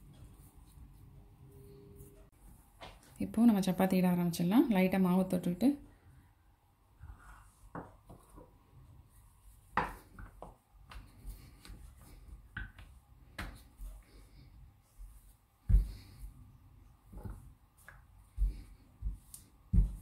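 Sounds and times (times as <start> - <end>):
rolling pin rolling dough on stone: 17.0 - 20.0.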